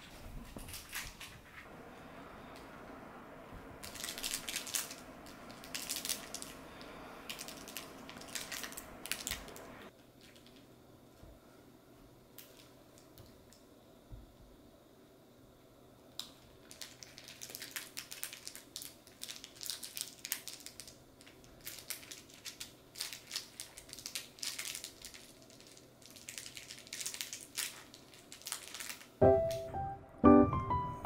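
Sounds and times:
dog chewing crackling toy: 0:03.8 - 0:06.6, 0:07.3 - 0:09.5.

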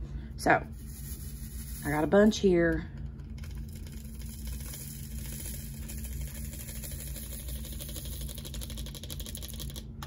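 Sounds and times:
small beads pouring into plastic: 0:00.8 - 0:02.1, 0:03.4 - 0:09.8.

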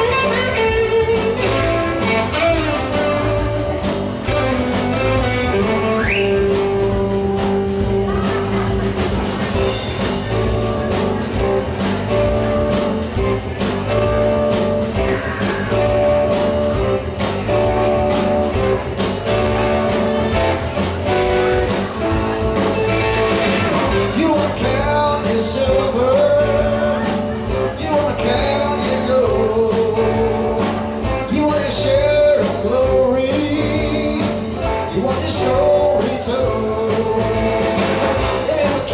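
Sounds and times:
bass guitar: 0:00.0 - 0:38.9
drum kit beat: 0:00.0 - 0:38.9
electric guitar: 0:00.0 - 0:38.9
person singing: 0:19.5 - 0:38.9.

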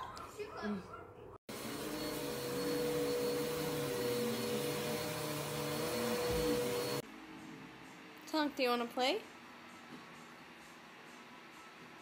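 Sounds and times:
vacuum cleaner running: 0:01.5 - 0:07.0.

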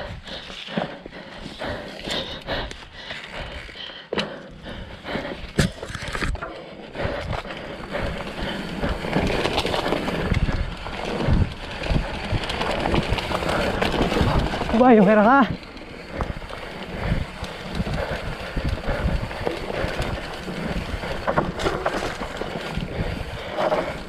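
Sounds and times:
bike tyres crunching on dirt: 0:05.2 - 0:24.0
bike frame and chain rattling: 0:05.5 - 0:24.0.

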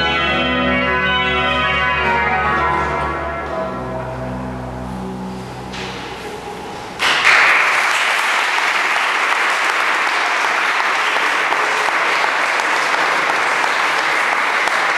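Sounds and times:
pipe organ chord: 0:00.0 - 0:07.4
audience applauding: 0:07.0 - 0:14.9.

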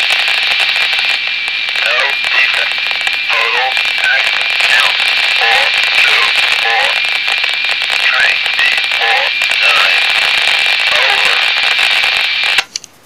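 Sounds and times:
radio static hiss: 0:00.0 - 0:12.8
steady high whine: 0:00.0 - 0:12.9
automated voice over radio: 0:01.8 - 0:07.0, 0:07.9 - 0:10.1, 0:10.8 - 0:11.5.

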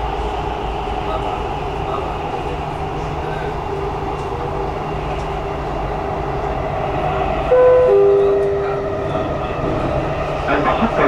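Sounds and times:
train wheels and motors rumbling: 0:00.0 - 0:11.0
steady pitched tone: 0:07.5 - 0:09.6.

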